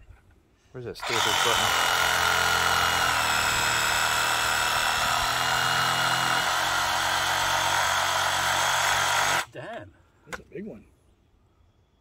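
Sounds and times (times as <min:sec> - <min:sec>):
saw blade rasping through root: 0:01.0 - 0:07.4
reciprocating saw motor whine: 0:01.0 - 0:09.5.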